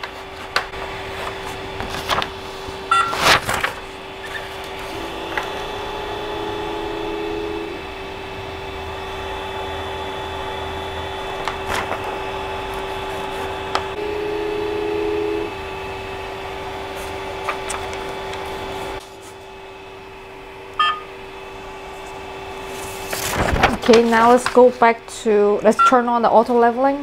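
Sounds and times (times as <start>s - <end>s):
printer fans humming: 0.0s - 27.0s
touchscreen beep: 2.9s - 3.2s, 20.8s - 21.1s
motor whir: 3.5s - 8.2s.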